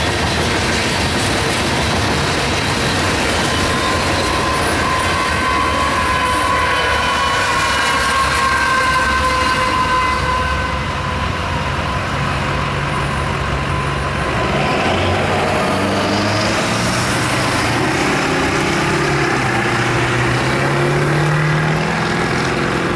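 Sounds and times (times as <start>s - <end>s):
crossing bells ringing: 2.4s - 22.9s
truck engines pulling away: 13.1s - 22.9s.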